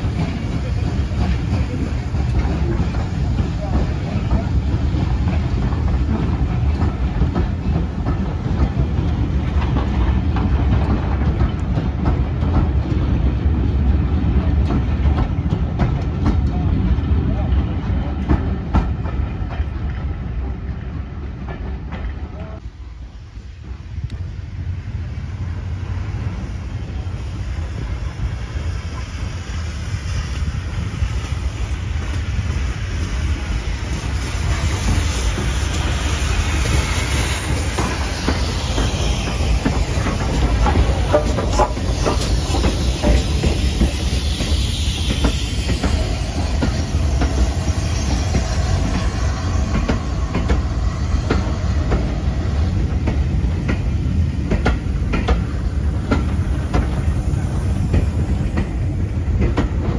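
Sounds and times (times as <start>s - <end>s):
train coaches rumbling past: 0.0s - 59.9s
wheels clicking over rail joints: 34.0s - 59.9s.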